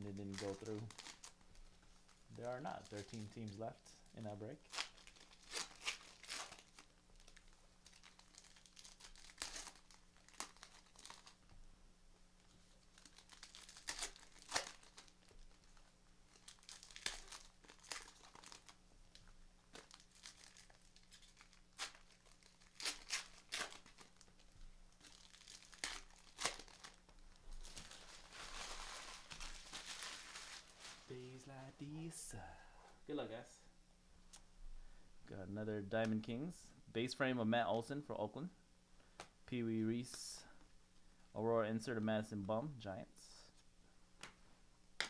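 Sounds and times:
foil wrappers crinkling and tearing: 0:00.0 - 0:11.5, 0:12.4 - 0:31.1.

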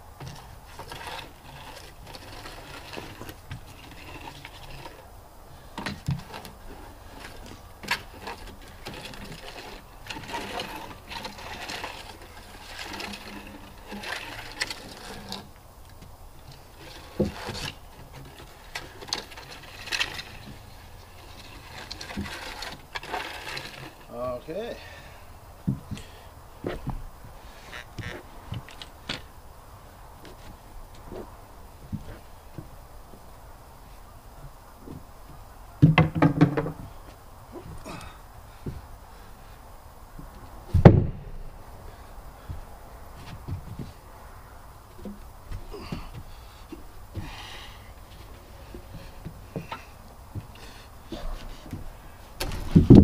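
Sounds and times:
tools knocking and scraping on wood: 0:05.8 - 0:24.0, 0:34.4 - 0:37.0, 0:42.4 - 0:44.0, 0:44.9 - 0:47.4, 0:48.1 - 0:53.0.

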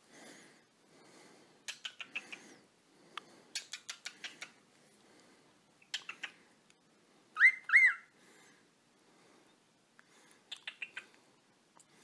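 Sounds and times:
cockatiel chirps: 0:01.7 - 0:02.4, 0:05.8 - 0:06.4, 0:07.4 - 0:08.1, 0:10.5 - 0:11.1
cockatiel soft clicks: 0:01.7 - 0:02.4, 0:03.1 - 0:04.6, 0:05.9 - 0:06.8, 0:10.0 - 0:11.2.

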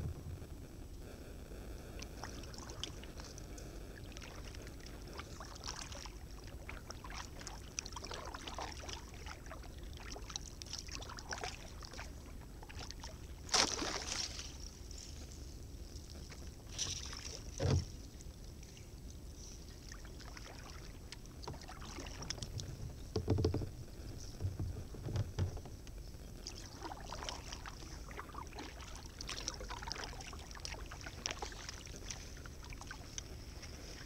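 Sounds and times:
low knocks: 0:00.0 - 0:00.5
water trickling from paddling: 0:02.0 - 0:34.0.

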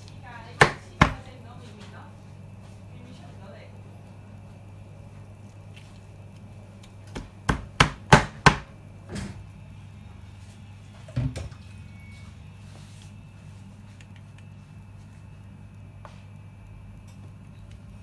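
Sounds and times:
cleaver chopping on plastic board: 0:00.6 - 0:01.2, 0:07.1 - 0:08.7.

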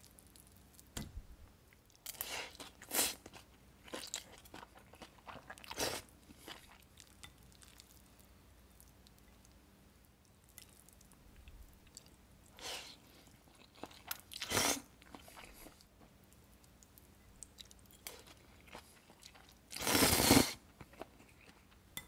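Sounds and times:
person chewing noodles: 0:01.9 - 0:08.1, 0:10.5 - 0:21.8.

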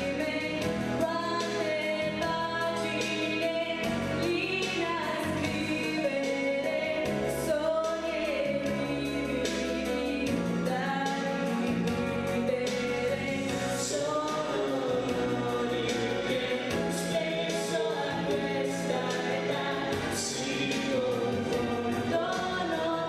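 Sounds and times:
instrumental accompaniment: 0:00.0 - 0:23.0.

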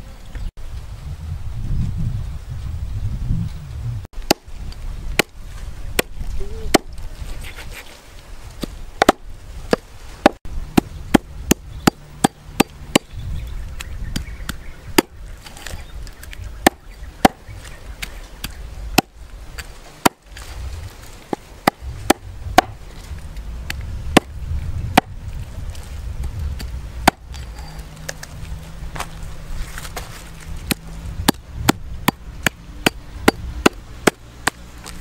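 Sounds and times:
cleaver chopping on wooden block: 0:05.1 - 0:05.4, 0:08.6 - 0:13.1, 0:16.6 - 0:17.4, 0:18.4 - 0:19.1, 0:20.0 - 0:20.3, 0:21.3 - 0:22.8, 0:24.2 - 0:25.2, 0:26.6 - 0:27.4, 0:30.7 - 0:35.0.

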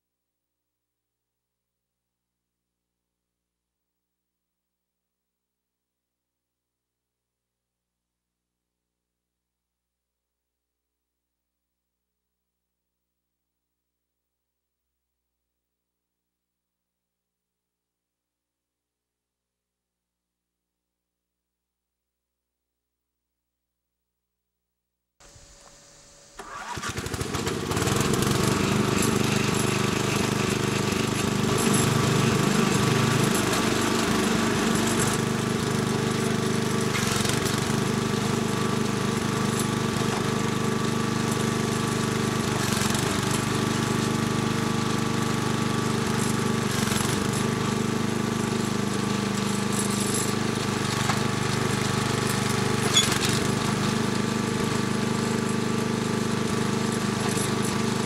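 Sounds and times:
small gasoline engine running: 0:25.2 - 0:58.0.

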